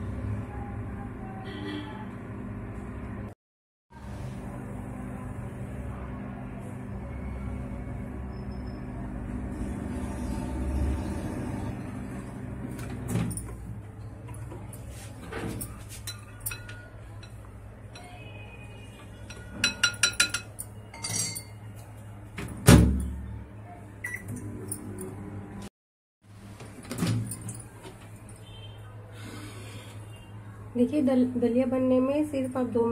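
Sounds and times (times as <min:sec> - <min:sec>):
microwave oven humming: 0:00.0 - 0:03.3, 0:03.9 - 0:15.9, 0:22.0 - 0:25.7
spoon clinking against glass bowl: 0:16.0 - 0:18.3, 0:19.2 - 0:21.6.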